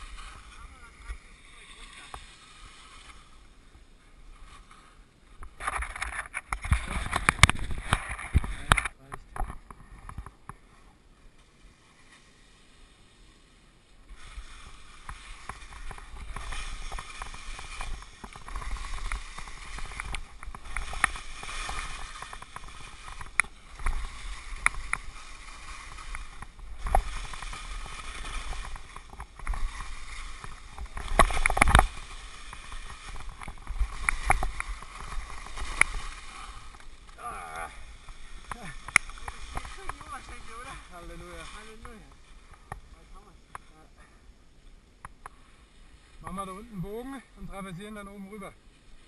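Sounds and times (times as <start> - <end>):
skis hissing over snow: 0.0 - 5.1, 11.5 - 44.0.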